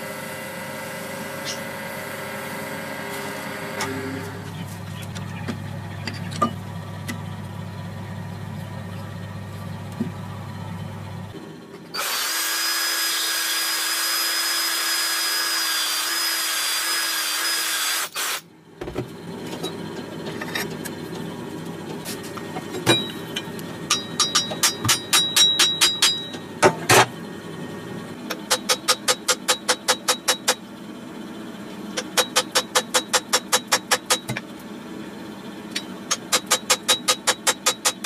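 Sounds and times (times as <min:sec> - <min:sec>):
electric power tool whining: 0:00.0 - 0:04.5, 0:11.9 - 0:18.4.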